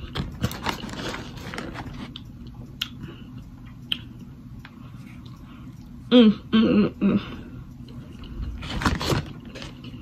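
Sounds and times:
person chewing: 0.0s - 6.3s.

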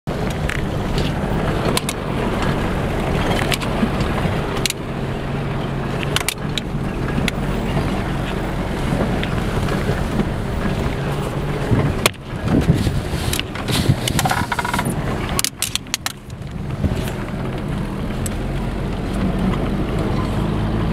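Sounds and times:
tyres on gravel: 0.1s - 20.2s
vehicle engine hum: 0.1s - 20.9s
knocks and rattles from bumps: 6.0s - 18.6s.

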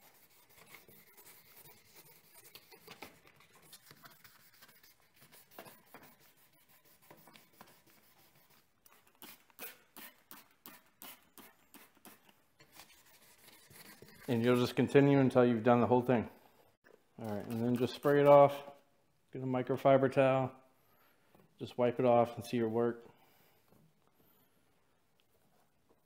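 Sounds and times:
sandpaper rubbing plastic: 0.0s - 14.8s, 17.3s - 18.6s.

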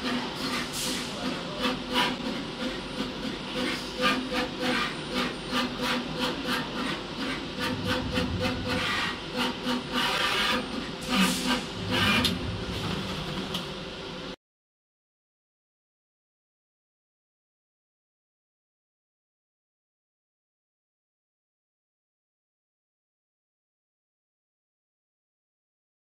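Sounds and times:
machine motor hum: 7.2s - 14.3s.

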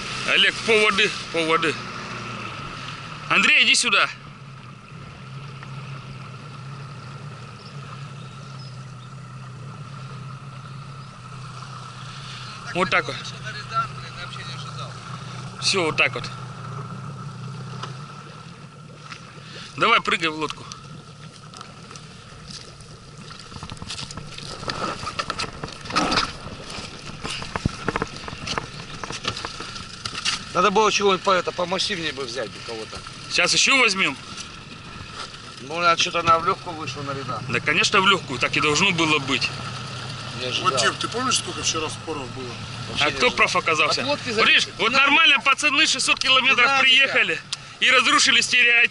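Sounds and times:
outboard motor humming: 0.0s - 48.9s
knocks and scuffs in inflatable boat: 20.7s - 30.6s.

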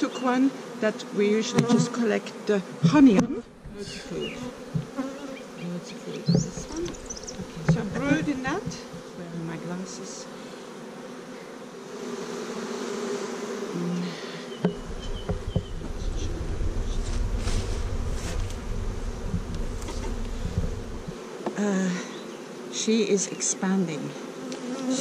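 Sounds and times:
bees buzzing: 0.0s - 25.0s
wooden frames knocking: 6.3s - 9.0s, 14.6s - 15.9s
low rumble: 14.7s - 21.2s.

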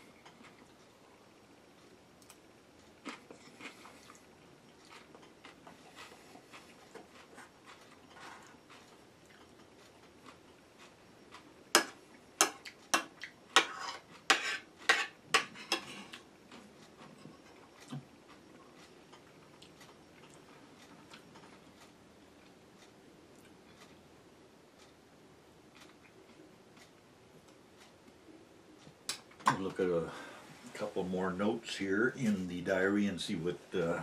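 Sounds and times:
chewing: 2.2s - 11.5s, 15.7s - 24.0s, 25.7s - 28.0s
cutlery clinking on ceramic plate: 11.8s - 16.0s.

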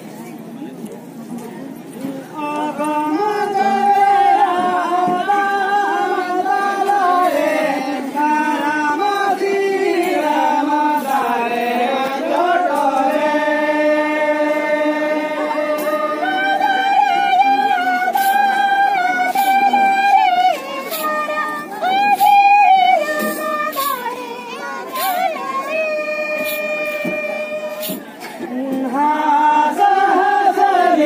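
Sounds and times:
group singing folk song: 2.0s - 31.0s.

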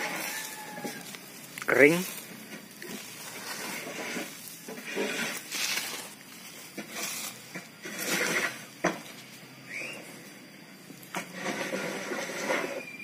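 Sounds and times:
compost rustling in a sack: 0.0s - 13.0s.

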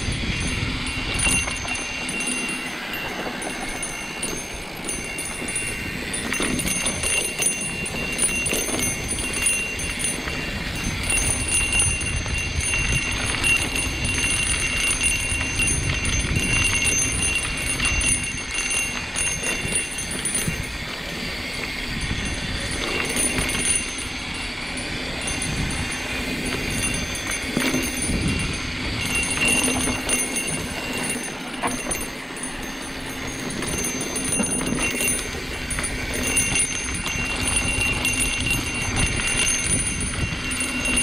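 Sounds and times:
bike rattling over bumps: 0.0s - 41.0s
high ringing buzz: 0.0s - 41.0s
wind rumble on microphone: 0.0s - 41.0s.

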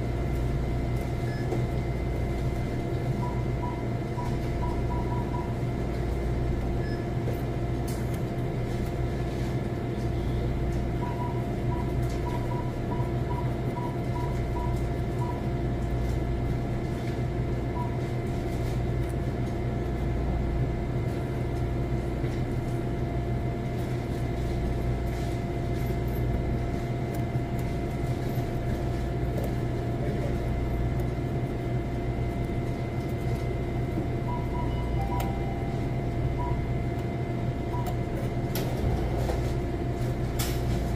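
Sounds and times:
machine hum with low rumble: 0.0s - 40.9s.

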